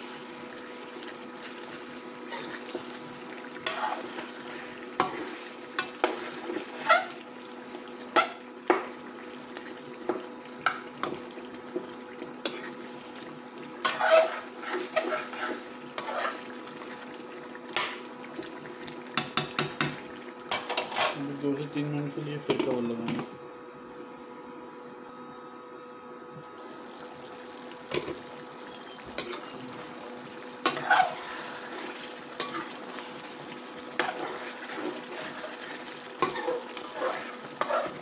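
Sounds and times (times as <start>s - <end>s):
food sizzling: 0.0s - 21.4s, 26.4s - 38.0s
metal spoon scraping a pan: 2.3s - 2.8s, 3.6s - 4.3s, 5.0s - 7.2s, 12.4s - 12.8s, 13.8s - 16.5s, 20.5s - 21.2s, 29.2s - 29.5s, 30.6s - 33.2s, 34.0s - 38.0s.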